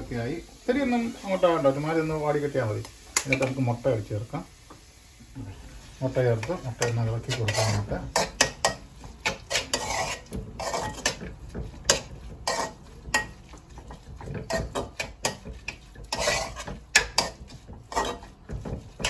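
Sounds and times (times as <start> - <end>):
metal spoon scraping steel pan: 6.2 - 19.0.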